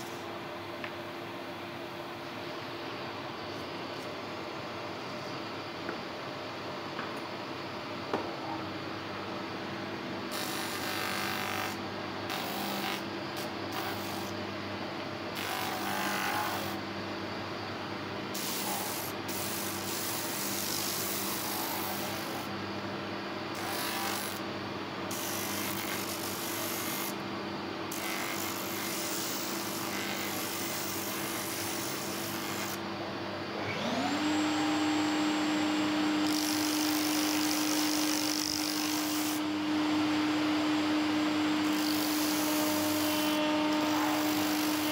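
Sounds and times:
motor whine: 33.5s - 44.9s
sander motor hum: 33.6s - 44.9s.

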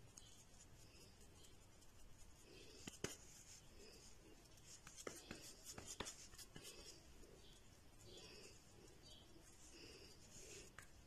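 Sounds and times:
hands patting moist mixture: 0.0s - 8.6s.

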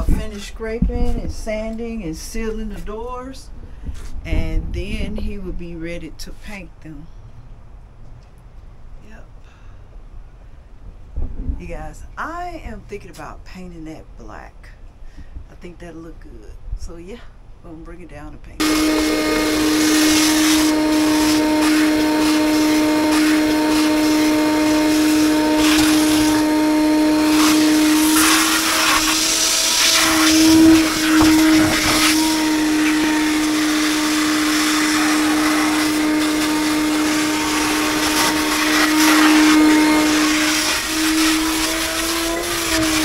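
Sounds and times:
shop vacuum motor whine: 18.6s - 43.0s.

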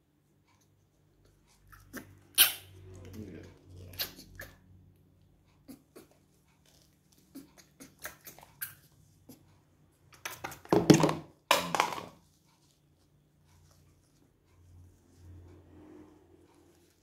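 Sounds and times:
baby monkey sucking on bottle: 0.6s - 4.6s, 5.6s - 9.5s.

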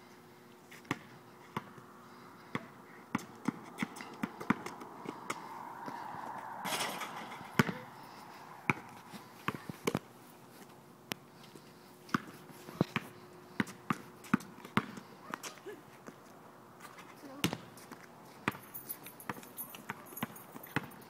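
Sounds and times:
basketball bouncing on hard court: 0.9s - 1.8s, 2.5s - 5.4s, 6.8s - 7.9s, 8.6s - 10.0s, 12.1s - 15.0s, 17.4s - 17.7s, 19.3s - 20.9s
brief rushing noise: 5.4s - 8.7s.

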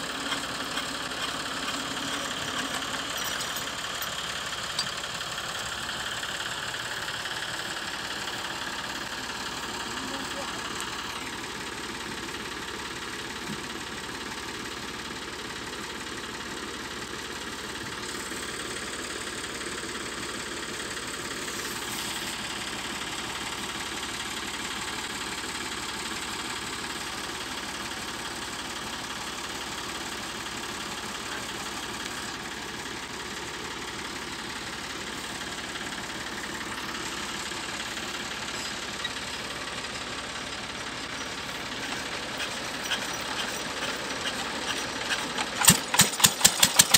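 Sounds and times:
engine idling: 0.0s - 46.9s.

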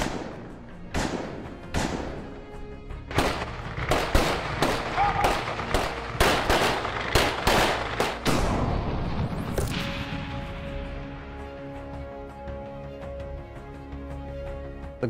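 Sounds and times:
pistol shots with echo: 0.0s - 2.4s, 3.1s - 8.9s.

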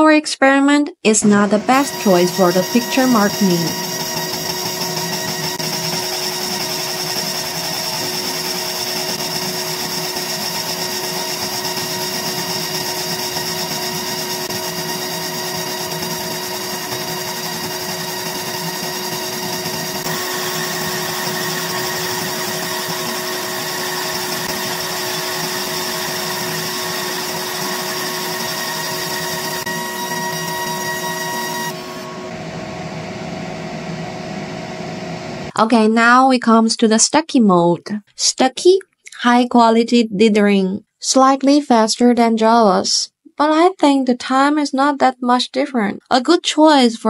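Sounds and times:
laser engraver buzzing whine: 1.4s - 35.5s.

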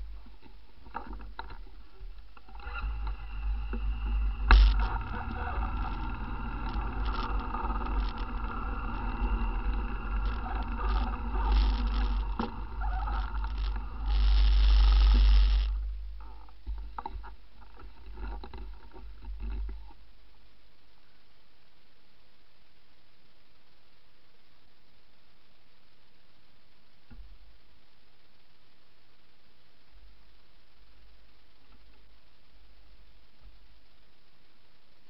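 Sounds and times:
rattling rumble: 0.0s - 19.9s
clicks: 0.3s - 18.7s
loud rush of noise: 2.4s - 16.1s
atv engine running: 2.5s - 15.7s.

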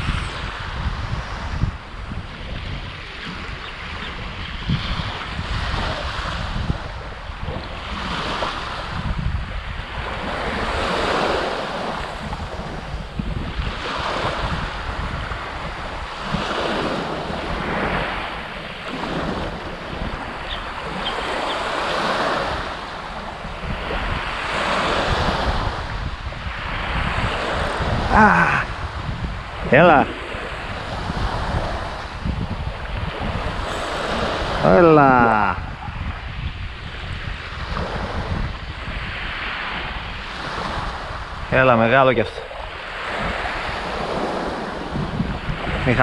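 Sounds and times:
wind buffeting microphone: 0.0s - 46.0s
waves washing on pebble shore: 7.8s - 35.6s.

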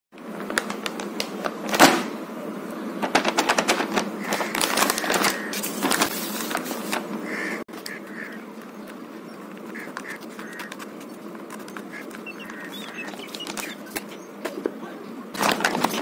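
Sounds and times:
plastic wrapping crinkling: 0.2s - 1.8s, 3.1s - 7.0s.

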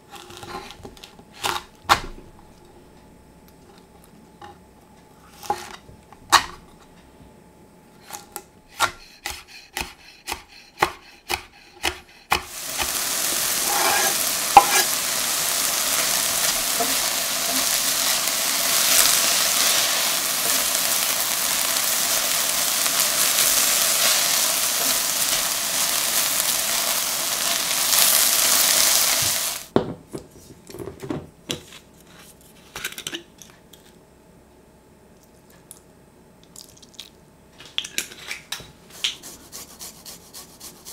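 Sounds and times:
knife chopping on wooden board: 8.8s - 12.5s, 13.8s - 14.9s
vegetables sizzling in frying pan: 12.3s - 29.7s.

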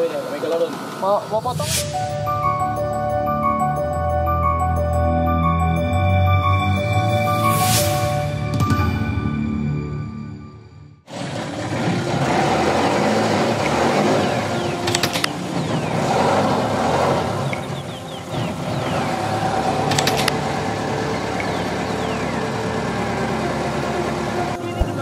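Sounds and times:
boat engine running: 11.1s - 25.0s
clattering clicks: 14.8s - 15.4s, 19.9s - 20.4s.

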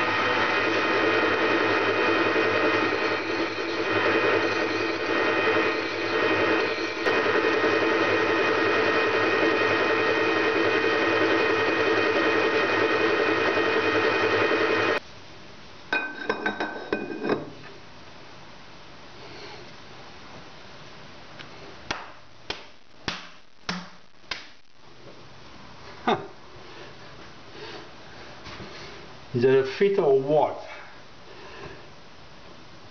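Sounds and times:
file and abrasive pad on spinning steel: 0.0s - 15.0s
metal lathe motor hum: 0.0s - 15.0s.

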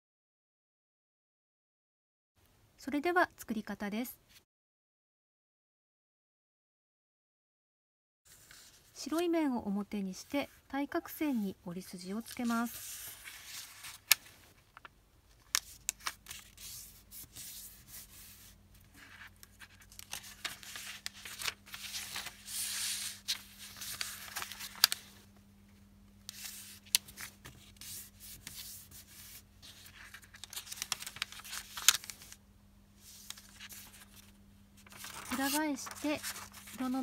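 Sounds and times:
paper crackling: 12.2s - 25.2s, 26.3s - 32.4s, 33.0s - 37.0s
paper rustling and sliding: 12.4s - 14.6s, 15.5s - 25.2s, 26.3s - 32.4s, 33.0s - 37.0s.

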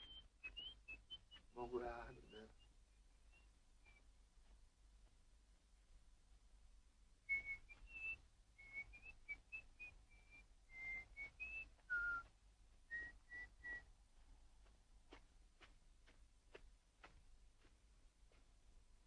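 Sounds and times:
person whistling a tune: 7.3s - 12.3s, 12.9s - 13.8s.

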